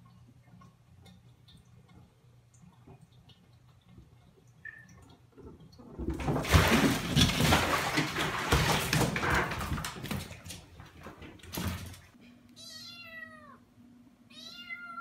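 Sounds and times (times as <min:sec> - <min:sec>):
kitten splashing in bathwater: 0:00.6 - 0:12.2.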